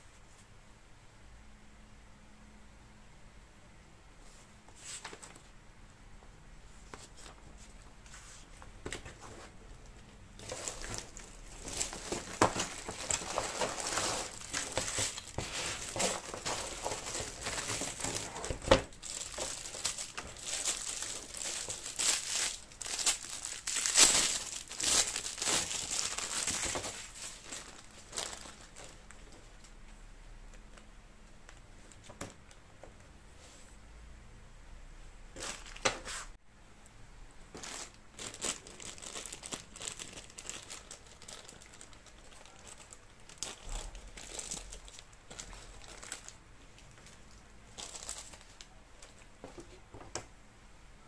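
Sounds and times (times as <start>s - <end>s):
plastic film crinkling: 8.8s - 29.8s, 35.4s - 36.1s, 37.5s - 49.8s.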